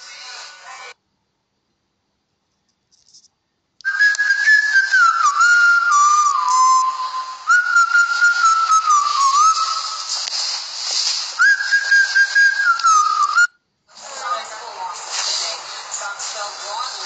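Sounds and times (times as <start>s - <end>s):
person whistling a tune: 3.9s - 10.2s, 11.4s - 13.6s.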